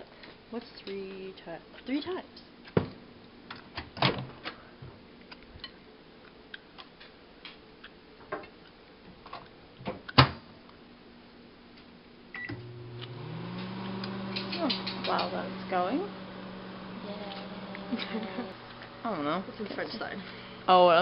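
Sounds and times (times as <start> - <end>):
microwave oven humming: 12.4 - 21.0.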